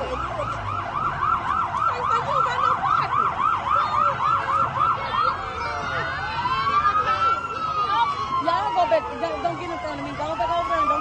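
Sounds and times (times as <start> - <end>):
emergency siren yelping and wailing: 0.0 - 11.0.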